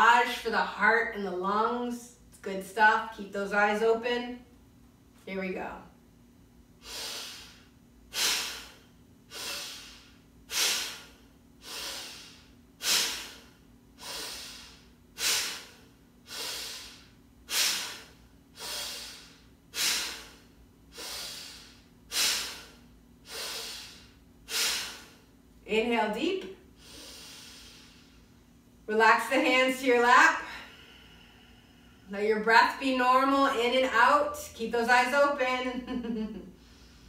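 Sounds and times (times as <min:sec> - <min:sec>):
woman breathing forcefully: 0:06.8 - 0:25.3, 0:26.7 - 0:28.4, 0:30.4 - 0:32.2, 0:36.5 - 0:37.0.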